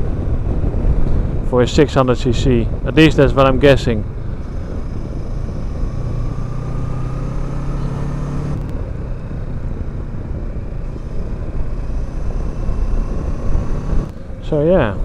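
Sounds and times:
wind rush on microphone: 0:00.0 - 0:15.0
motorcycle engine running: 0:02.7 - 0:14.4.

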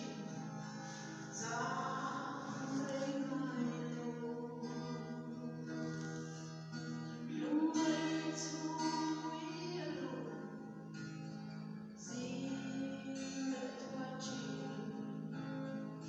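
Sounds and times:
woman singing gospel song: 0:00.0 - 0:05.7, 0:07.3 - 0:10.6, 0:12.0 - 0:15.4
acoustic guitar: 0:00.0 - 0:16.0.

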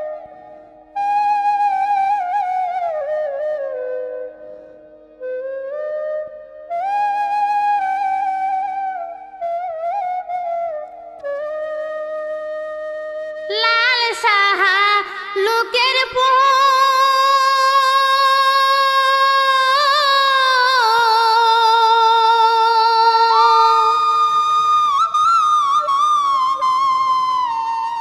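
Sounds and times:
woman singing folk song: 0:13.5 - 0:24.1.

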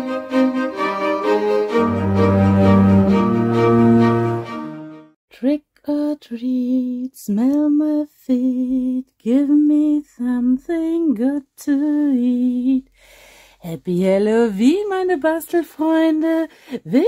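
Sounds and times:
woman singing unaccompanied: 0:05.3 - 0:13.0, 0:13.6 - 0:17.0.

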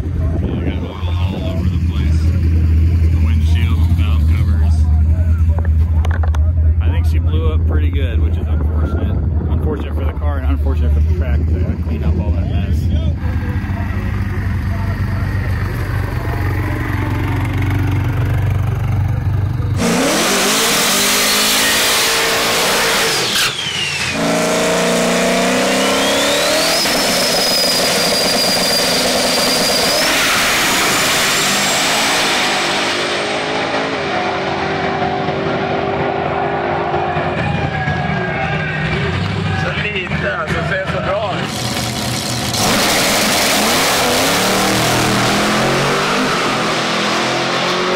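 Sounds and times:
low rumble: 0:00.0 - 0:19.8
race car engine revving: 0:00.0 - 0:47.9.

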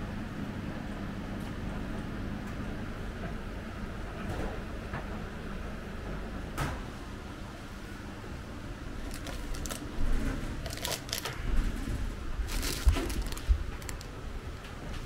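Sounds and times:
small items crinkling and clicking: 0:09.0 - 0:09.9, 0:10.6 - 0:11.5, 0:12.5 - 0:14.2.

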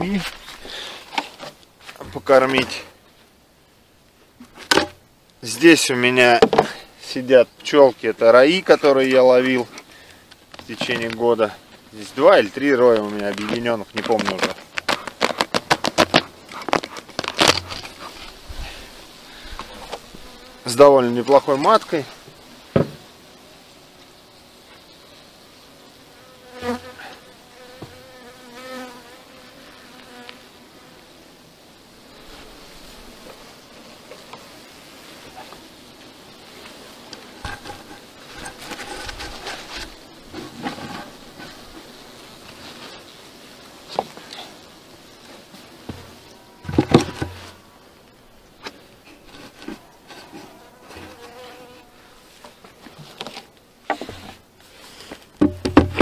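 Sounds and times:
bees buzzing: 0:05.6 - 0:56.0
knocks on wooden hive: 0:22.7 - 0:23.1, 0:55.4 - 0:56.0.

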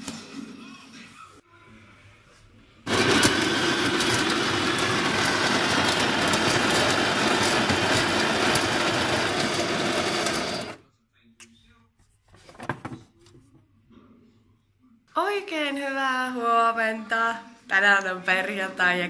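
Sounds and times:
coffee beans crackling: 0:02.9 - 0:10.8
coffee grinder motor: 0:02.9 - 0:10.8.

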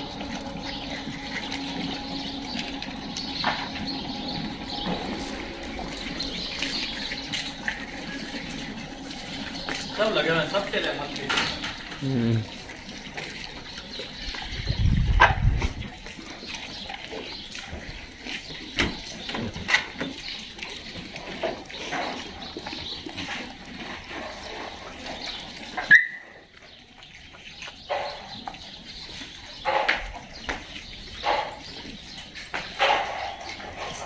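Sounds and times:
dogs barking and yelping: 0:00.0 - 0:09.9, 0:20.1 - 0:34.0.

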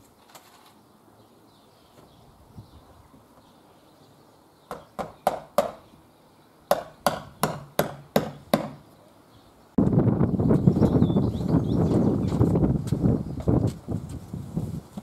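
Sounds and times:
hammer striking nail: 0:04.7 - 0:05.8, 0:06.7 - 0:08.8.

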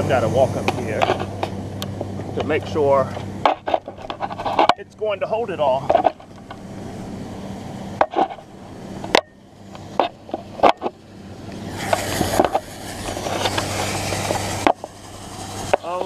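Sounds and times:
steady engine hum: 0:00.0 - 0:16.0
rushing noise: 0:11.5 - 0:16.0.

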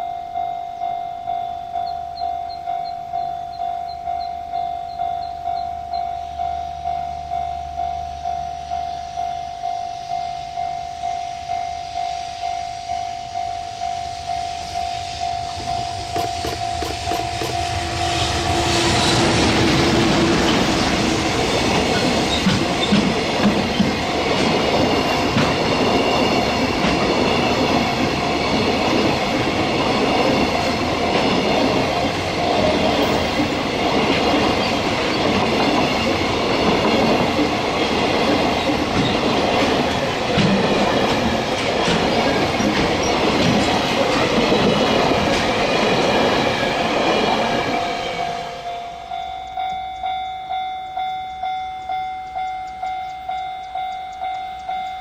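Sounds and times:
level-crossing bell ringing: 0:00.0 - 0:18.2, 0:47.5 - 0:55.0
train wheels clattering on rails: 0:14.8 - 0:48.4.

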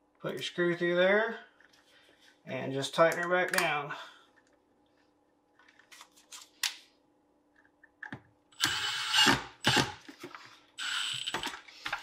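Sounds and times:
cordless drill running: 0:08.6 - 0:10.0, 0:10.8 - 0:11.6.

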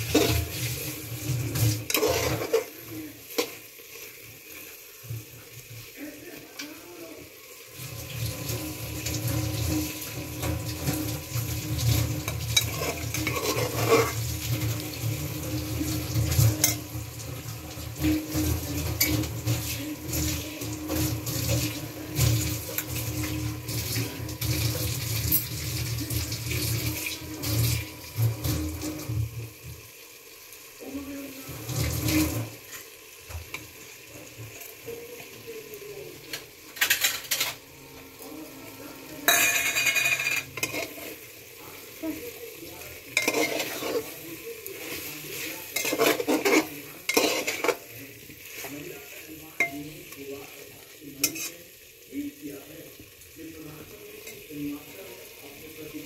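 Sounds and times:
metal spatula scraping a pot: 0:00.0 - 0:03.6, 0:08.1 - 0:25.6, 0:31.4 - 0:32.9, 0:39.2 - 0:41.3, 0:43.1 - 0:48.9, 0:51.2 - 0:51.6
food sizzling: 0:00.0 - 0:56.0.

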